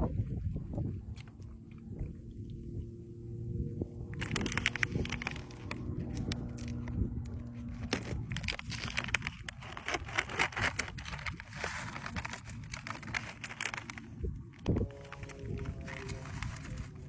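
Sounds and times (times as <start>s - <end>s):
foil pouch crinkling: 4.0s - 17.0s.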